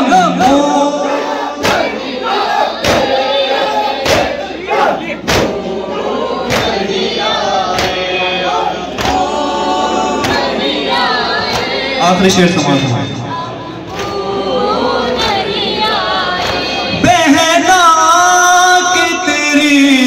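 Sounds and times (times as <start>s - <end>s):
men chanting over loudspeaker: 0.0s - 20.0s
crowd beating chests in unison: 0.4s - 12.0s, 13.6s - 17.7s.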